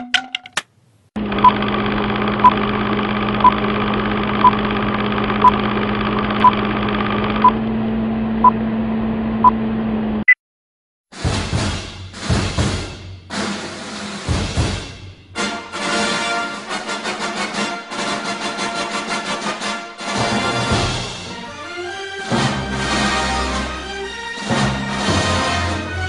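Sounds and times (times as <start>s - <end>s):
film projector whirring: 1.2s - 7.6s.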